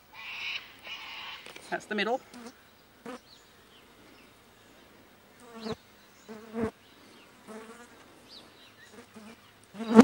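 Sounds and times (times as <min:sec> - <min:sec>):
flying insect buzzing: 0:05.4 - 0:06.8, 0:07.4 - 0:08.1, 0:08.8 - 0:10.0.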